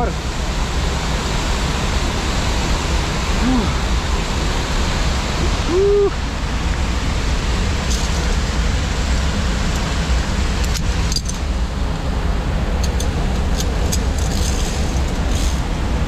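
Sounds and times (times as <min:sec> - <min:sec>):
loud rushing noise with rumble: 0:00.0 - 0:16.0
metallic carabiner clinks: 0:10.6 - 0:11.5, 0:12.8 - 0:15.6.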